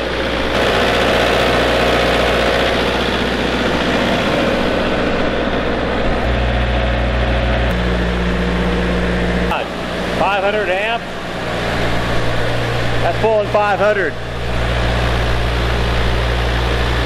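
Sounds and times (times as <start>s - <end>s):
welding generator engine running: 0.0s - 17.0s.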